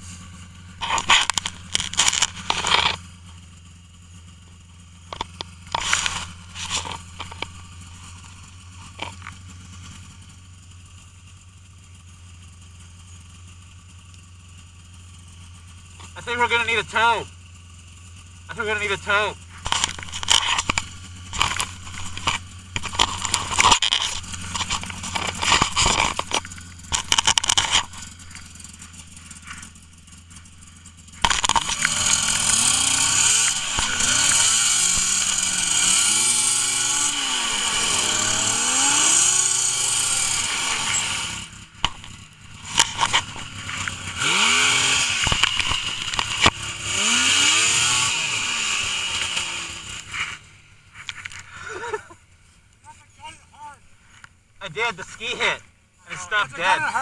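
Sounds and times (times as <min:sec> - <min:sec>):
snowmobile engine revving: 0:00.0 - 0:10.9, 0:15.0 - 0:57.0
snow being scraped: 0:05.8 - 0:07.1, 0:31.8 - 0:41.6.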